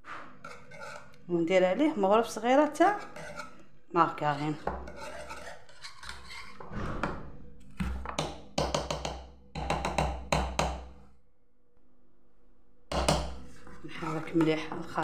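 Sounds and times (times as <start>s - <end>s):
spoon tapping on saucepan: 8.1s - 10.9s, 12.9s - 13.4s.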